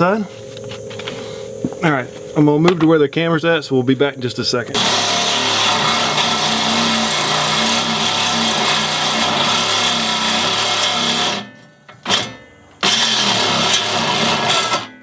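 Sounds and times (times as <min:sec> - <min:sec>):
reciprocating saw cutting metal: 0:04.3 - 0:15.0.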